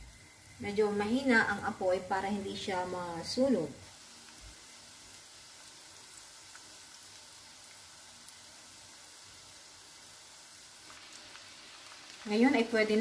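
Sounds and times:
faint deep-frying sizzle: 0.0s - 13.0s.

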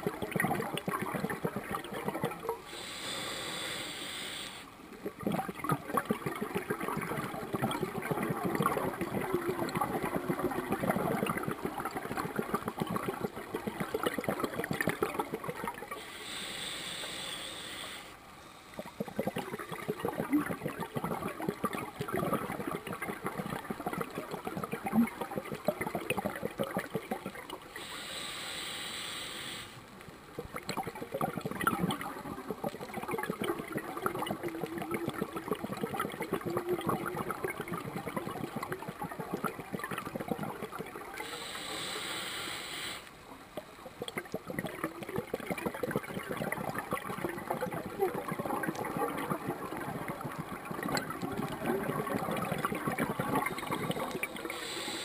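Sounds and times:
exhaled bubbles gurgling: 0.0s - 18.0s, 18.7s - 55.0s
regulator hissing inhale: 2.7s - 4.7s, 16.0s - 19.1s, 27.8s - 29.8s, 41.2s - 43.1s, 54.5s - 55.0s.

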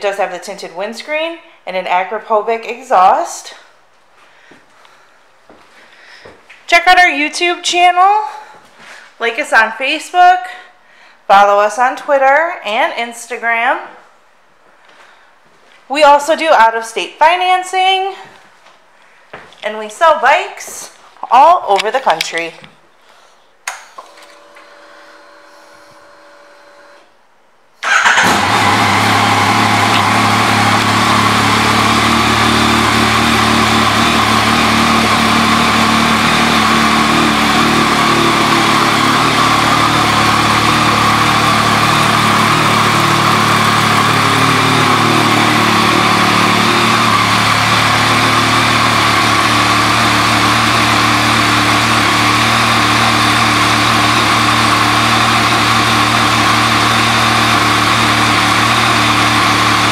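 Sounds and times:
motorcycle engine idling: 28.0s - 50.3s.

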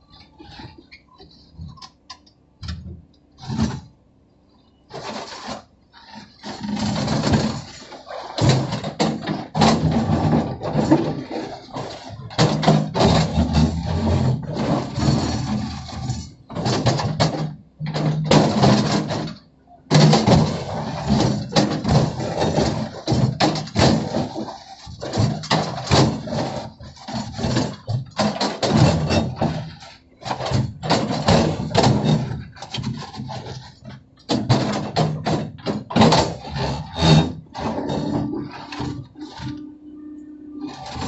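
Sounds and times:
bucket scraping soil and stones: 4.9s - 16.6s, 20.3s - 34.0s, 35.9s - 39.5s
excavator engine drone: 35.5s - 41.0s.

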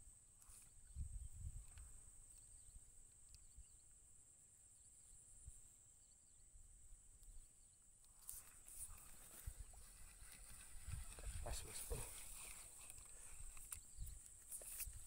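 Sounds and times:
faint chirps: 0.4s - 15.0s
wind rumble on microphone: 0.8s - 2.1s, 9.4s - 12.1s.

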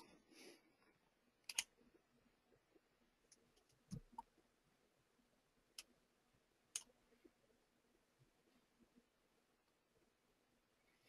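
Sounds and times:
computer mouse clicks: 1.4s - 1.8s.

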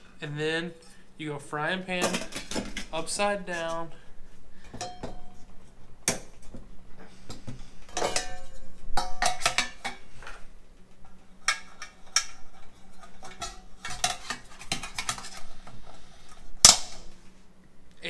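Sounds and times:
metal cookware clanking: 4.7s - 5.4s, 7.9s - 10.0s.

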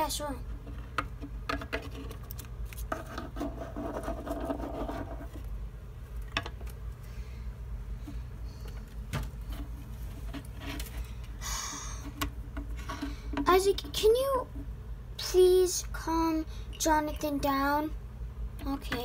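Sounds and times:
steady low hum: 0.0s - 19.0s
plastic figurines clicking and rubbing: 0.4s - 5.5s.

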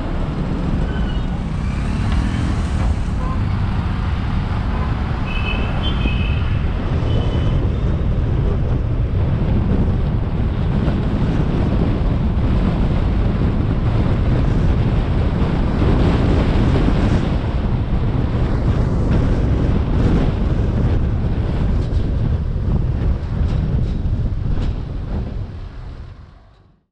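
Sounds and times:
wind buffeting microphone: 0.0s - 26.6s
road and traffic noise: 0.0s - 26.8s.

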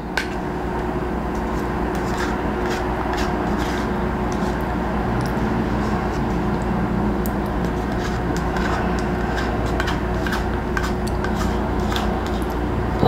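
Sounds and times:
low appliance hum: 0.0s - 13.0s
utensil clicking on plate: 7.2s - 12.6s.

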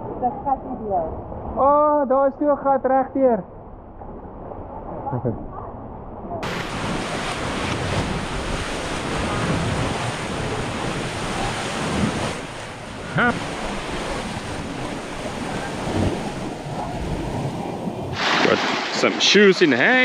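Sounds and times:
wind buffeting microphone: 6.3s - 18.6s
waves washing onto beach: 6.4s - 20.0s.

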